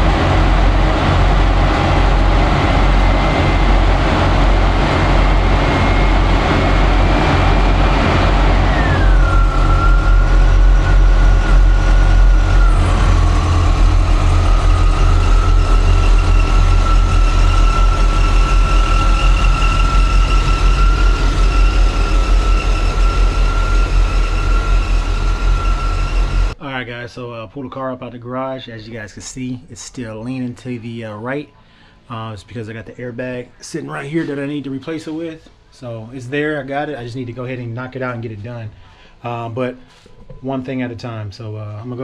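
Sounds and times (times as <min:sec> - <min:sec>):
car engine running: 0:00.0 - 0:26.6
high whine: 0:00.0 - 0:26.7.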